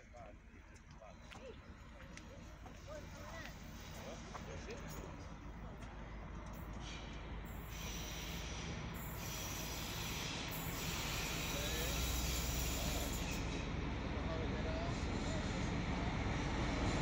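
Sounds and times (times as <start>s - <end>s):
locomotive running hum: 0.0s - 17.0s.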